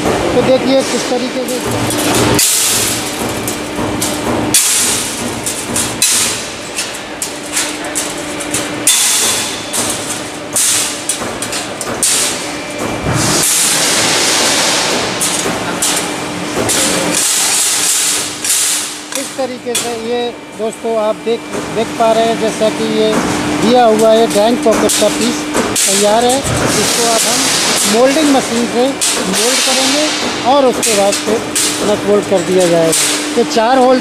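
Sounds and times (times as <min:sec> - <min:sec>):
sheet metal clattering and scraping: 0:00.0 - 0:20.1
machine hum: 0:00.0 - 0:34.0
sharp metal knocks: 0:01.5 - 0:20.1.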